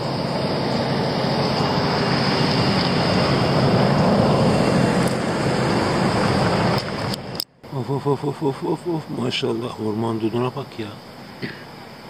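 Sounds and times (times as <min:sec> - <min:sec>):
vehicle driving past: 0:00.0 - 0:07.4.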